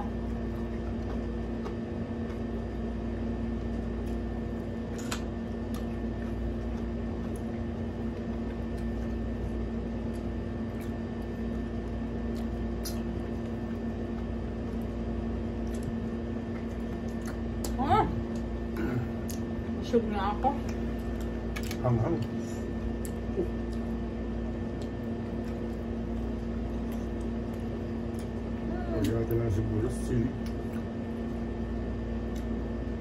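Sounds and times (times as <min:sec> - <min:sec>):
appliance humming: 0:00.0 - 0:33.0.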